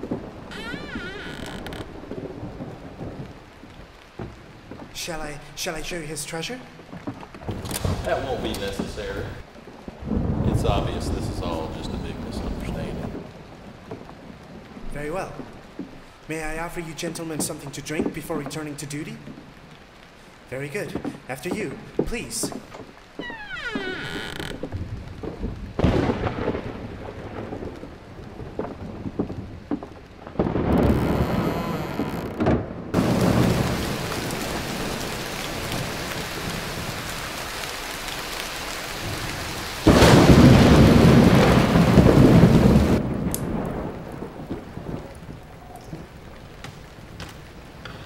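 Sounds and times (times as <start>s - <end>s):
thunder rumbling: 0.0s - 19.4s, 23.7s - 37.4s, 38.8s - 48.0s
heavy rain: 0.0s - 48.0s.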